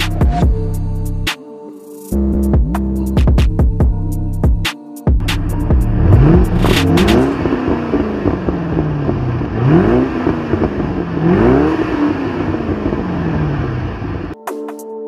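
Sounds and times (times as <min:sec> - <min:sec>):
car engine revving: 0:05.2 - 0:14.4.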